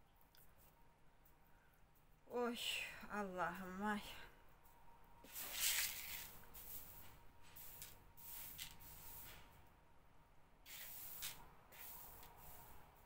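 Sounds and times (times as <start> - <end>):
fingers raking through grain: 5.3 - 9.4, 10.7 - 12.8.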